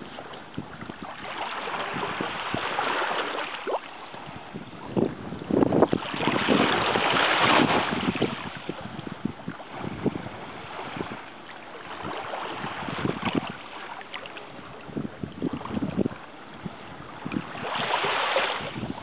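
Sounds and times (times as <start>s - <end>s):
shallow water lapping: 0.0s - 19.0s
wind buffeting microphone: 0.0s - 19.0s.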